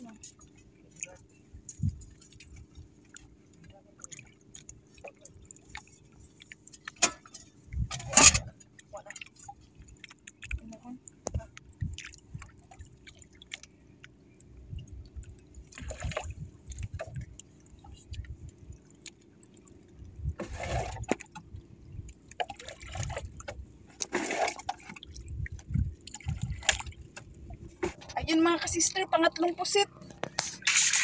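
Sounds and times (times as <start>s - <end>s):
low uneven rumble: 0.0s - 30.7s
water lapping against boat hull: 0.0s - 31.0s
water splashing surges: 22.3s - 25.1s, 30.4s - 31.0s.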